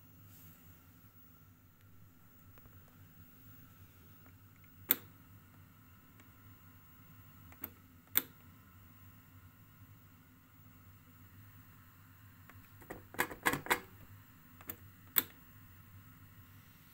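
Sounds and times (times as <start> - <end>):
vcr buttons clicking: 4.3 - 5.1, 7.4 - 8.5, 12.5 - 13.9, 14.6 - 15.4.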